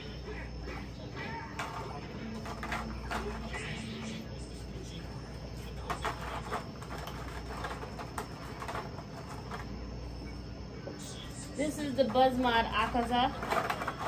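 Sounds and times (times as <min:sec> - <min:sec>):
steady low hum: 0:00.0 - 0:14.0
plastic toy clicks and rustles: 0:12.8 - 0:14.0.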